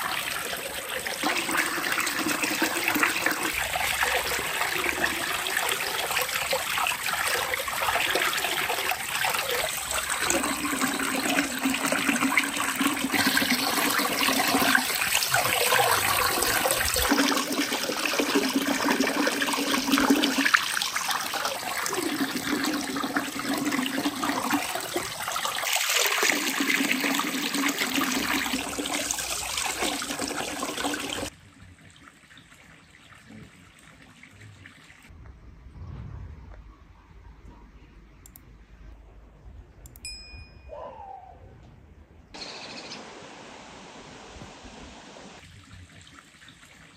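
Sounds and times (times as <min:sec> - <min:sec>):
water pouring from a spout: 0:00.0 - 0:35.1
water splashing in a metal basin: 0:00.0 - 0:35.1.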